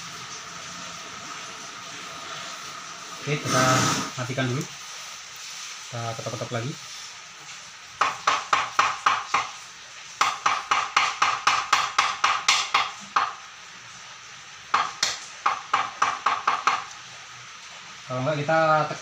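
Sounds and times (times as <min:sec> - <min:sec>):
hammer knocking on aluminium: 0:08.0 - 0:09.5, 0:10.2 - 0:13.4, 0:14.7 - 0:16.9.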